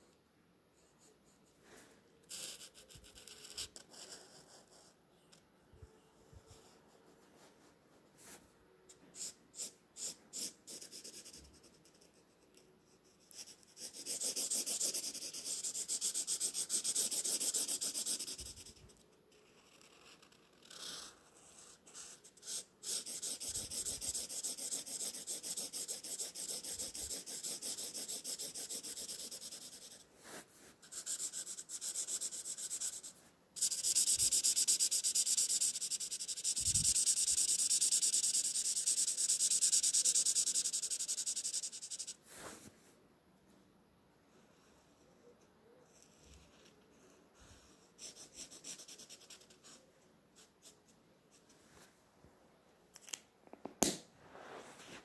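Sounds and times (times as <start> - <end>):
marker scratching on paper: 2.3 - 5.0, 6.5 - 12.3, 13.0 - 42.6, 47.6 - 49.8.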